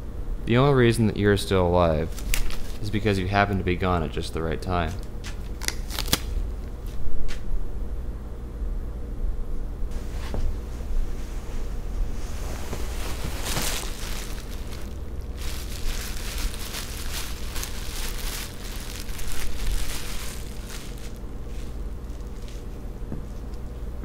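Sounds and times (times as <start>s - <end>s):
steady low hum: 0.0s - 24.0s
plastic sheeting crinkling: 2.1s - 3.1s, 12.1s - 22.8s.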